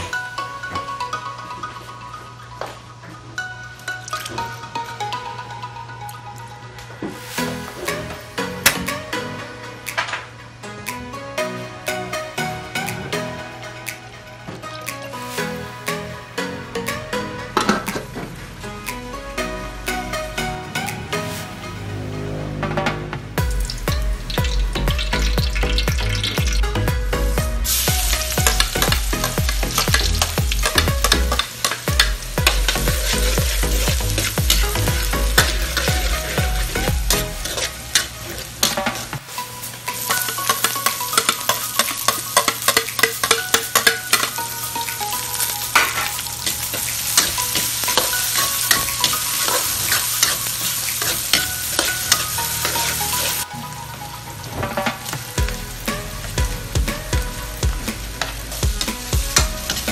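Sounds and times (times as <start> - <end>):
garlic and onion sizzling in oil: 7.2 - 8.1, 23.5 - 53.5, 54.4 - 59.9
spatula scraping metal wok: 27.7 - 39.2.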